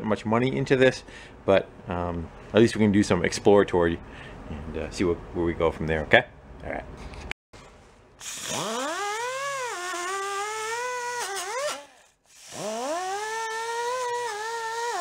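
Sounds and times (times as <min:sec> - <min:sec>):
power tool wire wheel whining: 0:08.2 - 0:15.0.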